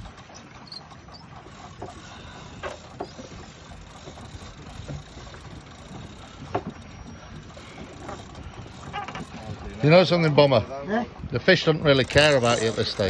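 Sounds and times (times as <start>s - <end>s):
sea and wind: 0.0s - 13.0s
fishing reel clicks and knocks: 12.0s - 13.0s.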